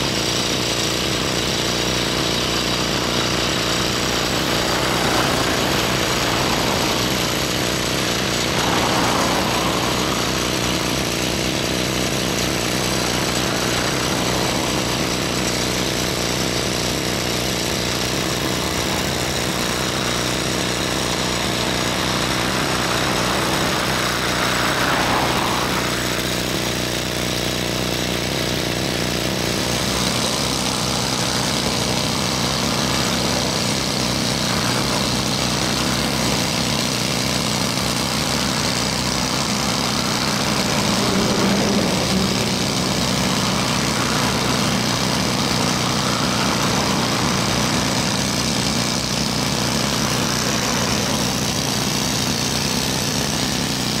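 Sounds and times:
diesel construction machinery running: 0.0 - 54.0
vehicle passing: 3.0 - 15.6, 18.2 - 26.8, 38.2 - 48.7.

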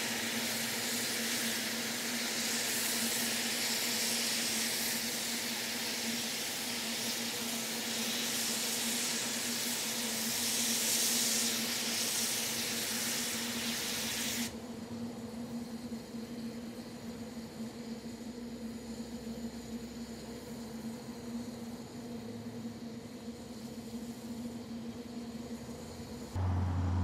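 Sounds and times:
steam hissing: 0.0 - 27.0.

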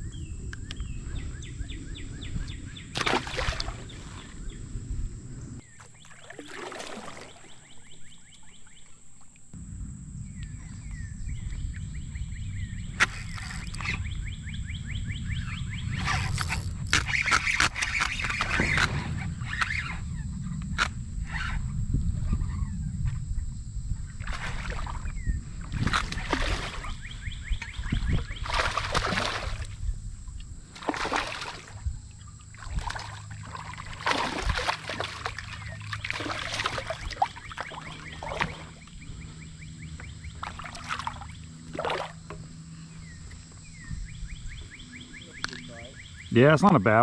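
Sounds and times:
water splashing: 2.9 - 4.4, 5.8 - 8.0, 24.2 - 25.1, 25.7 - 27.1, 27.9 - 29.8, 30.7 - 31.8, 32.5 - 38.9, 40.4 - 42.3.

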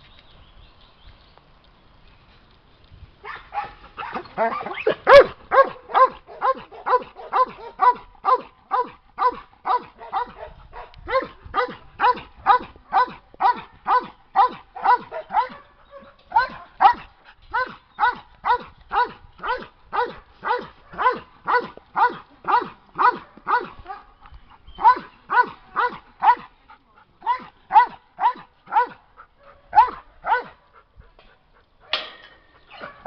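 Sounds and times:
dog barking: 3.2 - 24.1, 24.8 - 26.4, 27.2 - 30.6, 32.7 - 33.0.

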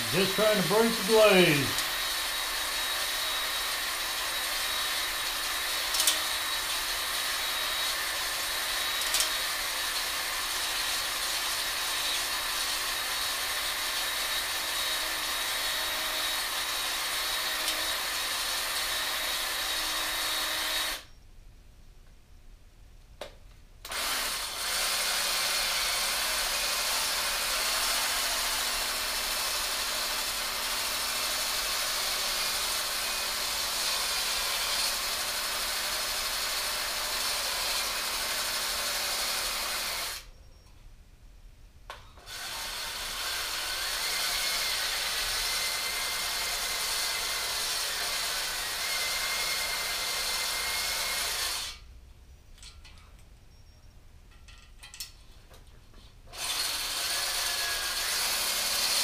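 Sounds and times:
drill spinning cylinder hone: 0.0 - 21.1, 23.9 - 40.2, 42.2 - 51.8, 56.4 - 59.0.

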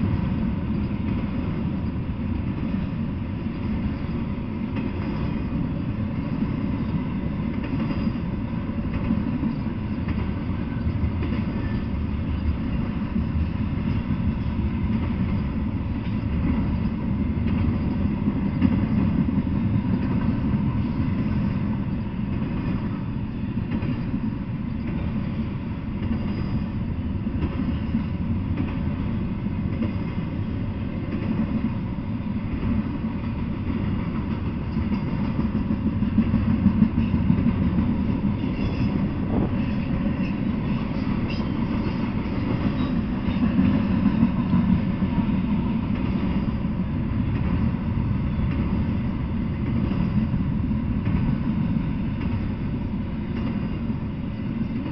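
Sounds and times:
freight train rumbling on rails: 0.0 - 54.9.

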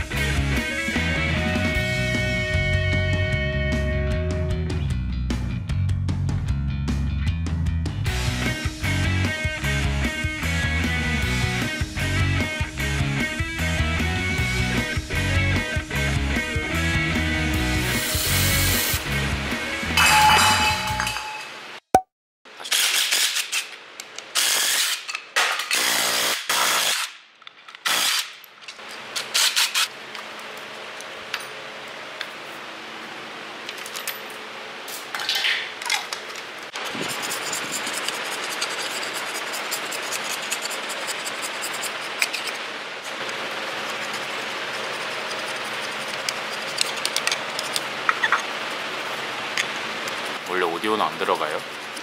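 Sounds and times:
short bursts of a power tool: 24.4 - 25.1
hand scraper rasping on metal: 36.8 - 42.6, 43.6 - 47.9.

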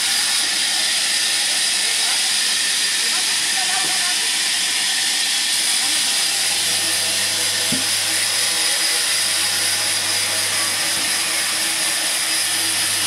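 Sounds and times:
low motor hum: 6.4 - 13.0.

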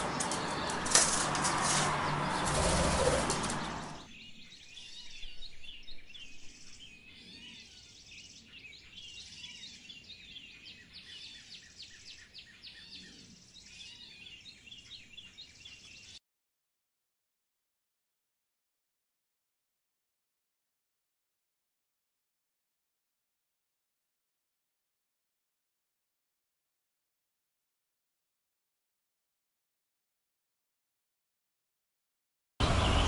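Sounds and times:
loud rushing rustling noise: 0.0 - 4.1
songbirds chirping: 0.0 - 16.2, 32.6 - 33.0.

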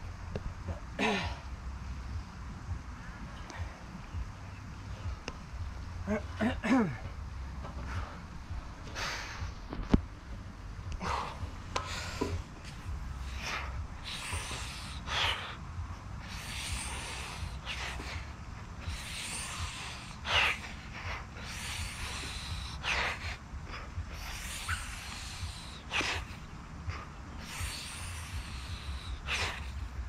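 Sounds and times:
man breathing hard: 6.0 - 9.8, 10.8 - 30.0.

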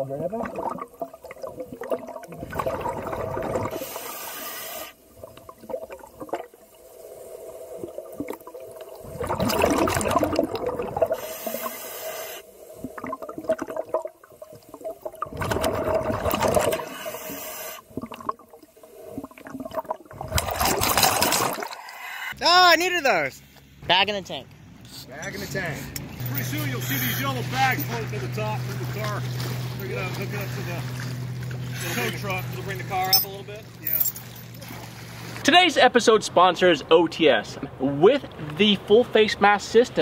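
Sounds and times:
faint steady hum: 0.0 - 20.6
exhaled air bubbling underwater: 0.0 - 22.2
regulator inhale hiss: 3.7 - 5.0, 11.1 - 12.8, 16.8 - 17.9.

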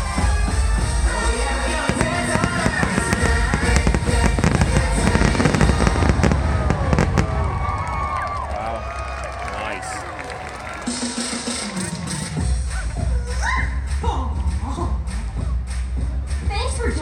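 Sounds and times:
soundtrack music: 0.0 - 6.7, 10.6 - 17.0
fireworks bursting and crackling: 0.0 - 8.4.

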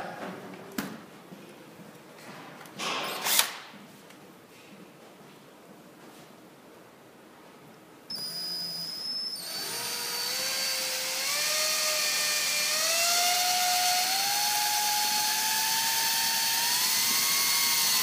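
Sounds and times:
cordless drill motor whine: 8.1 - 18.0.

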